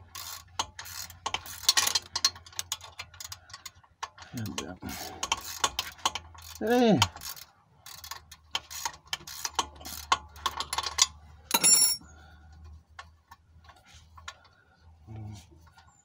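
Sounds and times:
ratchet wrench clicking: 0.1s - 4.2s, 4.9s - 11.2s.

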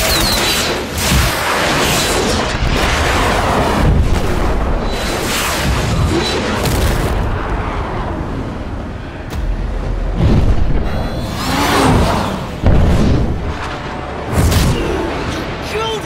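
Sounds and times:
explosion booms: 9.4s - 13.6s.

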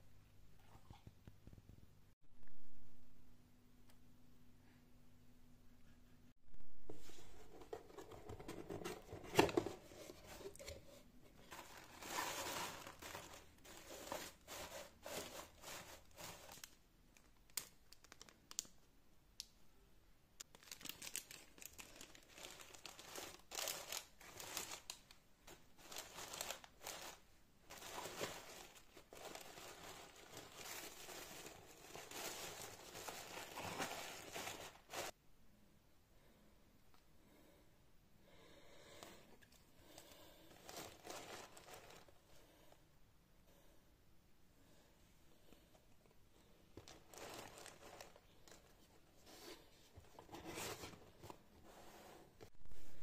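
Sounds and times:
paper crinkling and rustling: 7.0s - 16.8s, 20.4s - 35.2s, 40.5s - 42.2s, 46.7s - 51.9s.

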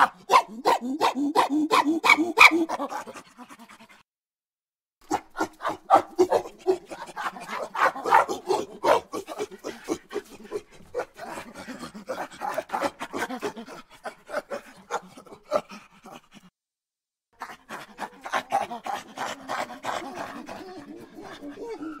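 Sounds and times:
animal panting with grunts: 5.4s - 16.5s, 17.4s - 22.0s.

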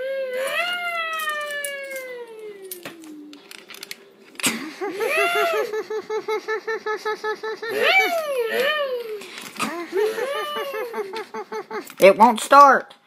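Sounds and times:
person imitating engine whine: 7.6s - 10.6s.

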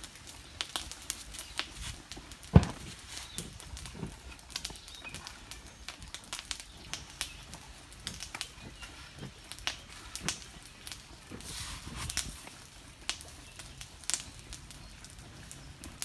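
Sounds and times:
charcoal fire crackling: 0.0s - 16.0s
flame whooshing: 11.3s - 12.4s.

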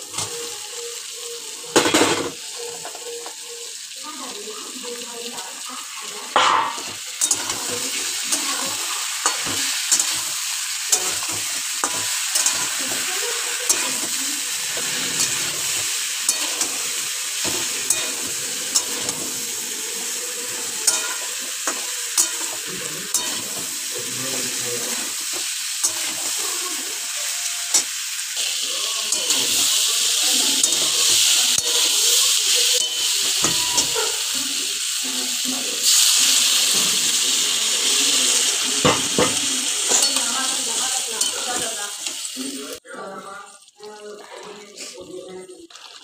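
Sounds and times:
vegetables sizzling in oil: 0.0s - 46.0s
spatula scraping a metal pan: 6.4s - 26.6s, 29.0s - 34.2s.

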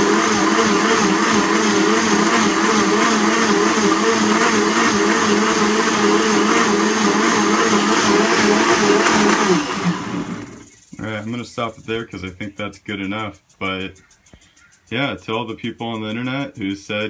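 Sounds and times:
blender running: 0.0s - 10.7s.

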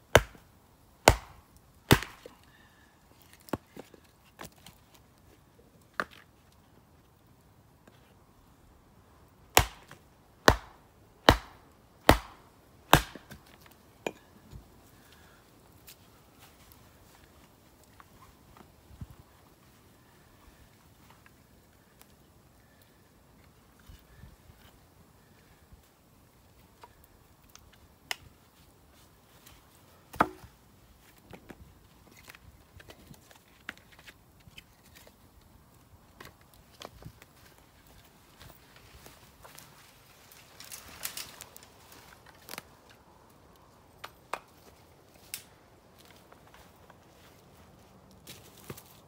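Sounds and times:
hatchet chopping log: 0.1s - 2.3s, 9.5s - 13.4s, 30.1s - 30.5s.

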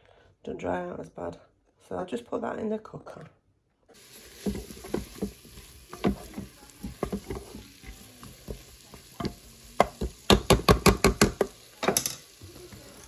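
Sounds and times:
faint sizzle: 3.9s - 13.0s
wooden spoon scraping pot: 4.0s - 13.0s.

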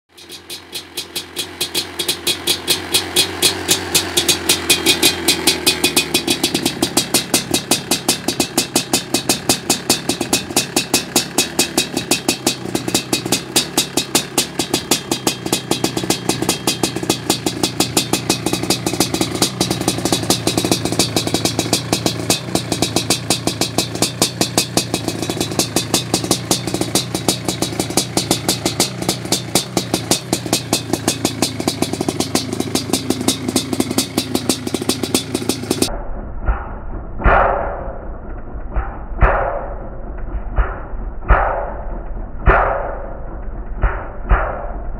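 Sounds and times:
two-stroke engine idling: 0.1s - 35.9s.

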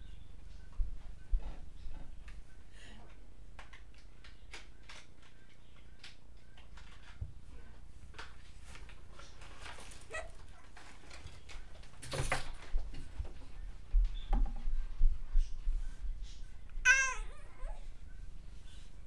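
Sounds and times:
baby squealing: 16.9s - 17.8s.

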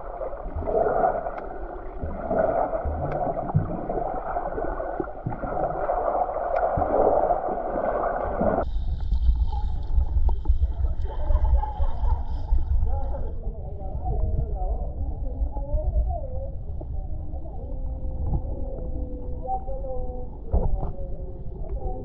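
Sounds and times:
water gurgling underwater: 0.0s - 14.2s
rumbling sound: 0.0s - 19.2s.

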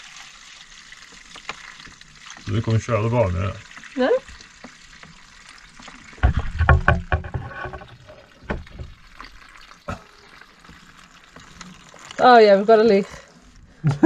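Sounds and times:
liquid trickling through funnel: 0.0s - 13.8s
plastic knocks and rustles: 6.2s - 9.0s.

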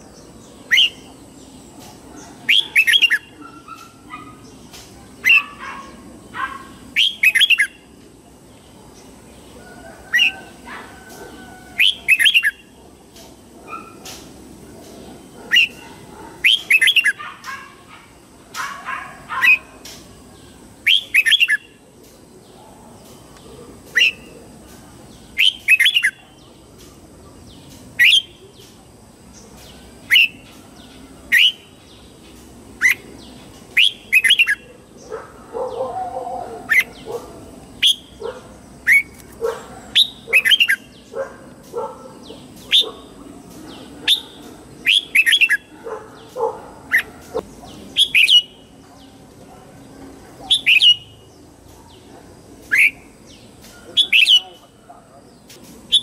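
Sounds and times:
fainter lower bird calls: 0.0s - 7.9s, 13.7s - 21.8s, 22.4s - 49.2s
bird singing: 0.0s - 56.0s.

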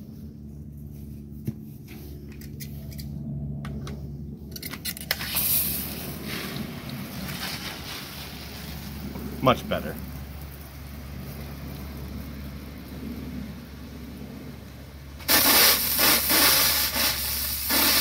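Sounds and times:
sprinkler water hissing: 5.1s - 18.0s.

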